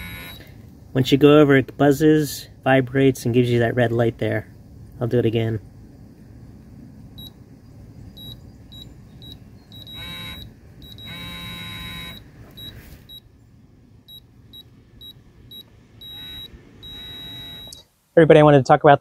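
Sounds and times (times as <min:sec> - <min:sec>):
torque wrench buzzing tones: 0:00.0 - 0:00.6, 0:08.2 - 0:13.2, 0:15.1 - 0:17.9
torque wrench short high beeps: 0:08.2 - 0:13.2, 0:14.1 - 0:17.8.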